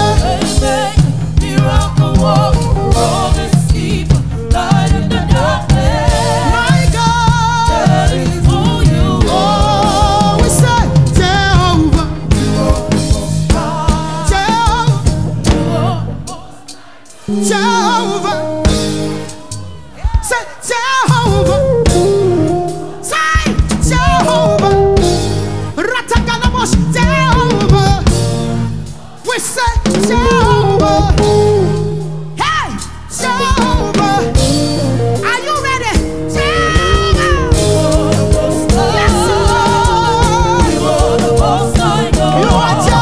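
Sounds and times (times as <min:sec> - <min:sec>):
drum kit and band: 0:00.0 - 0:43.0
woman singing: 0:32.4 - 0:43.0.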